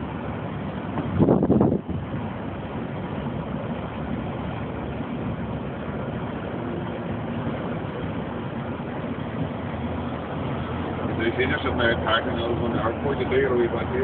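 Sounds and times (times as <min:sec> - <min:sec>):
car engine drone: 0:00.0 - 0:14.0.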